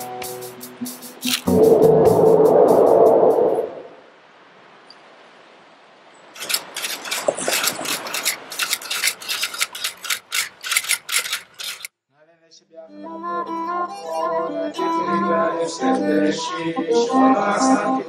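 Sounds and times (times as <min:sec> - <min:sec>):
typewriter-style clicks: 0:01.2 - 0:01.5, 0:06.4 - 0:11.9.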